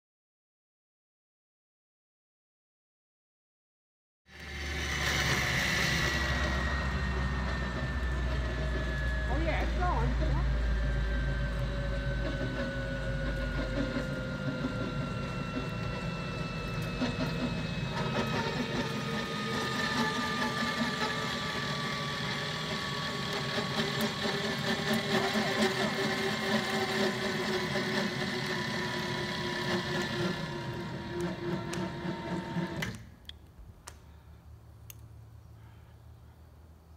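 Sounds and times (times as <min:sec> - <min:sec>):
engine running steadily: 0:04.3 - 0:33.0.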